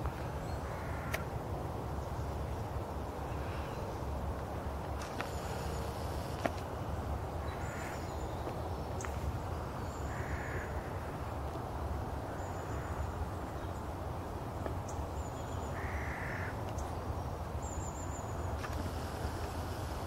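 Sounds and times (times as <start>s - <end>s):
low outdoor rumble: 0.0s - 20.0s
crow cawing: 0.7s - 1.2s, 10.1s - 11.0s, 15.8s - 16.6s.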